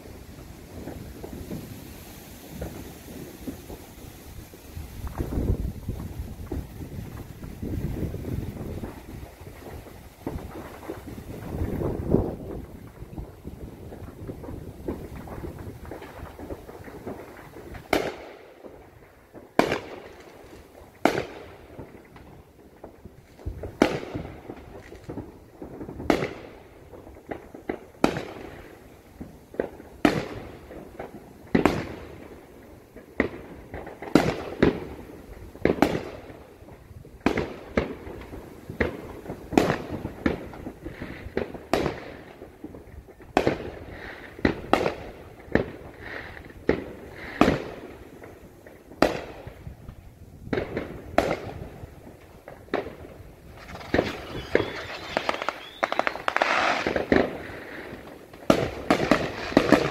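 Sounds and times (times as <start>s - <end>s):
fireworks bangs with echo: 0.0s - 59.9s.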